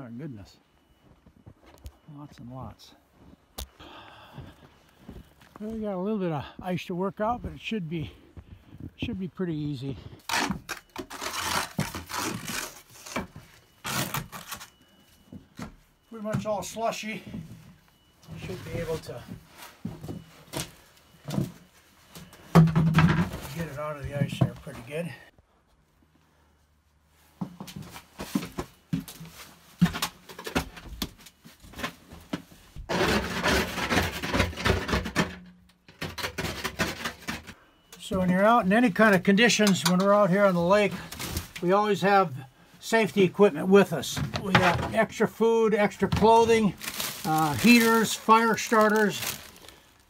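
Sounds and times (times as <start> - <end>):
snow shovel crunching and scraping: 32.9 - 34.2.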